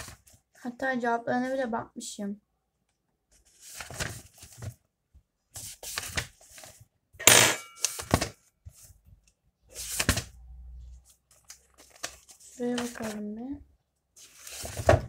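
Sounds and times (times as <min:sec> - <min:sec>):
pages flipping: 0:03.4 - 0:04.8, 0:05.6 - 0:06.8, 0:07.8 - 0:08.9, 0:09.7 - 0:10.3, 0:11.0 - 0:13.2, 0:14.2 - 0:15.0.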